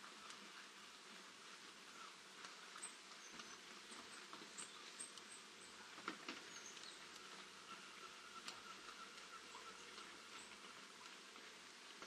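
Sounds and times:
light rain on foliage: 0.0s - 12.0s
small birds chirping: 2.7s - 11.2s.

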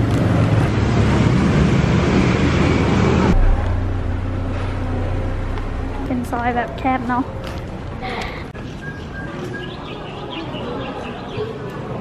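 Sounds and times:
street traffic noise: 0.0s - 12.0s
steady low hum: 2.2s - 8.6s.

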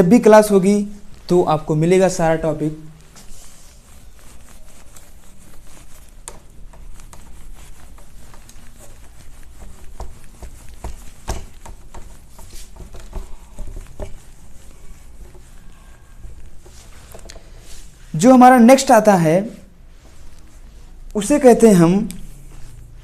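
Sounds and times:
eraser scrubbing whiteboard: 0.0s - 23.0s.

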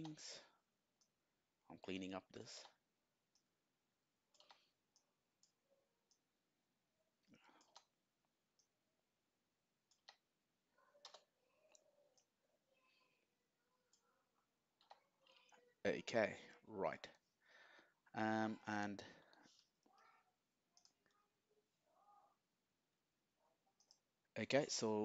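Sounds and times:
computer mouse and keyboard clicks: 4.3s - 6.2s, 7.4s - 8.0s, 9.9s - 10.3s, 11.0s - 12.3s, 20.8s - 21.2s.

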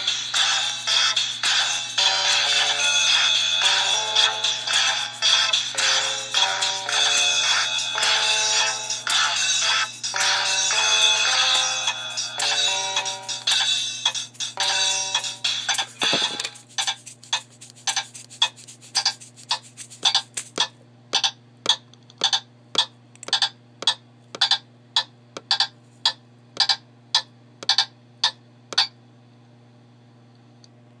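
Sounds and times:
faint steady hum: 0.0s - 31.0s
metronome ticking: 2.7s - 29.0s.

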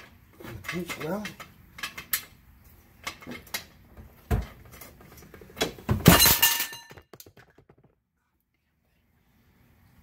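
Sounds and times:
steel jack clattering on concrete: 6.0s - 7.3s.

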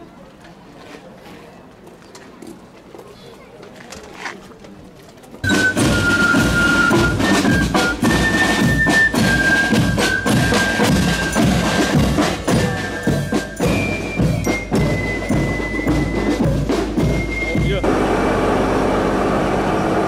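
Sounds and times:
snare drums: 5.4s - 18.1s
high flute melody: 5.4s - 18.2s
cymbals: 5.4s - 18.4s.

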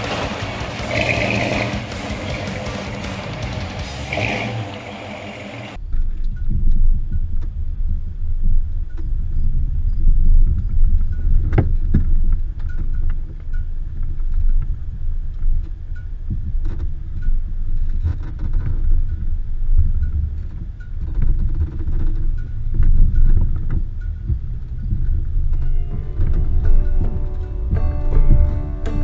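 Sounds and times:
knocks and rattles: 0.0s - 4.6s
off-road vehicle engine rumbling: 0.0s - 29.0s.

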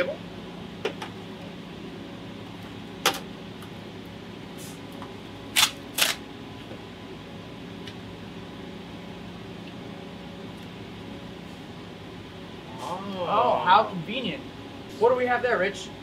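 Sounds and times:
low room hum: 0.0s - 16.0s
packaging being torn open: 5.6s - 6.2s.

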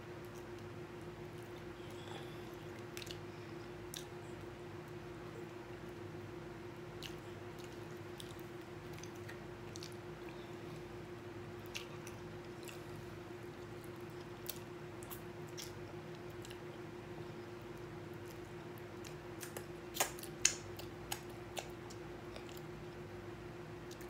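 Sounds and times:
steady hum: 0.0s - 24.0s
mouth clicks and smacks: 14.4s - 16.6s, 19.0s - 22.7s.

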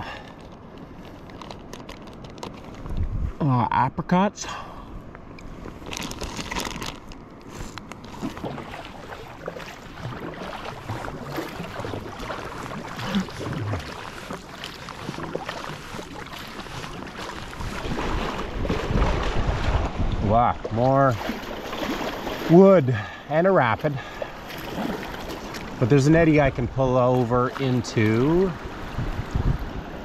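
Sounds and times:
water sloshing around hull: 0.0s - 3.4s, 4.7s - 30.0s
wind rumble on microphone: 1.3s - 3.6s, 4.9s - 21.3s, 27.9s - 30.0s
paddle strokes splashing: 5.4s - 30.0s.

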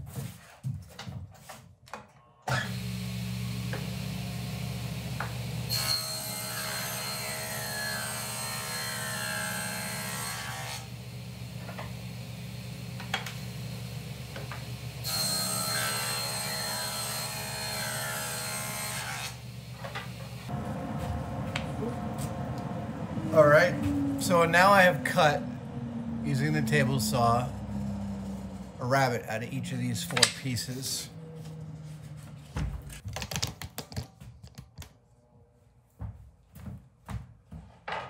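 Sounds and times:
saw cutting through wood: 2.5s - 4.1s, 5.2s - 11.9s, 14.3s - 19.5s, 20.5s - 32.2s
table saw running: 2.6s - 32.1s.

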